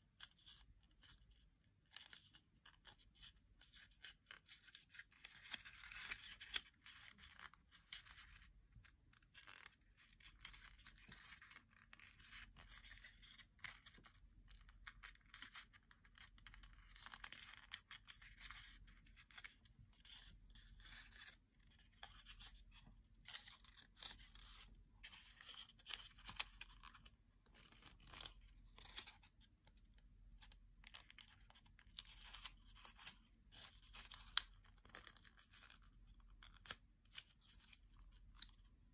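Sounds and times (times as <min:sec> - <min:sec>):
paper being folded and creased: 0:00.2 - 0:29.8.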